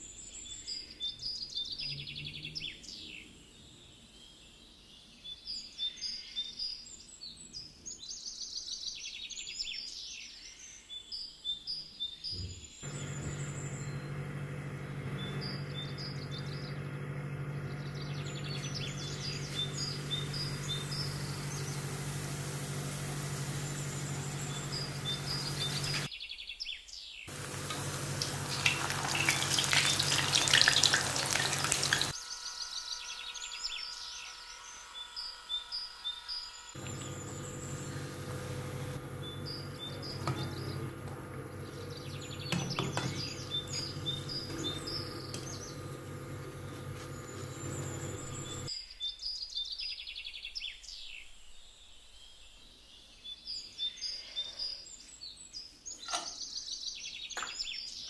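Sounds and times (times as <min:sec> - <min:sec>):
small birds chirping: 0:00.0 - 0:58.0
steady low hum: 0:12.8 - 0:26.1, 0:27.3 - 0:48.7
hot oil sizzling: 0:18.9 - 0:26.1, 0:27.3 - 0:32.2, 0:35.3 - 0:48.7.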